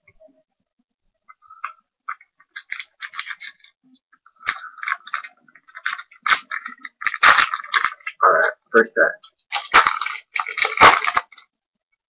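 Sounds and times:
card box packaging tearing: 9.6s - 11.4s.

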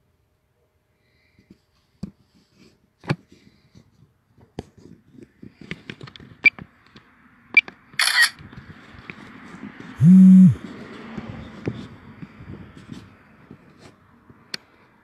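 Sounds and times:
camera shutter sound: 8.0s - 8.4s.

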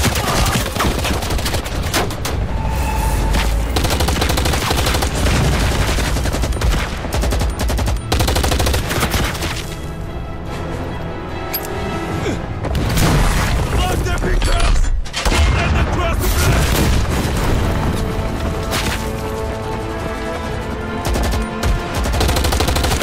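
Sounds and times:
dramatic film score: 0.0s - 23.0s
automatic gunfire: 21.1s - 23.0s.

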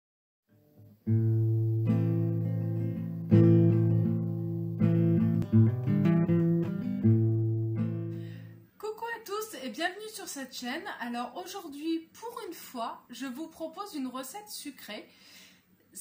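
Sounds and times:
acoustic guitar strummed chords: 0.5s - 8.6s.

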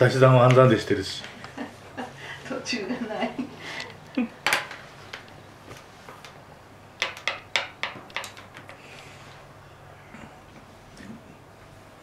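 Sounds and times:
pencil tapping on paper: 7.0s - 8.7s.

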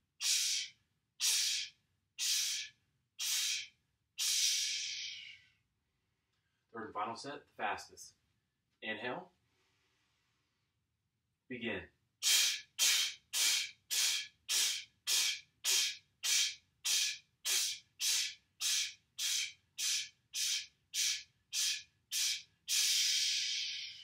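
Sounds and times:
man breathing forcefully: 0.2s - 5.4s, 12.2s - 24.0s.

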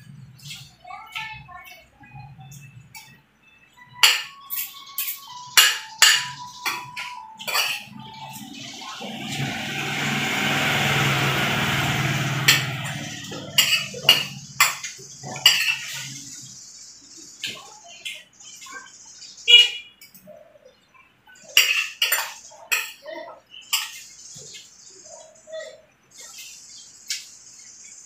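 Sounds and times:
cutlery clinking on plate: 4.0s - 7.9s, 21.5s - 23.0s
rushing noise with low rumble: 8.4s - 13.6s.

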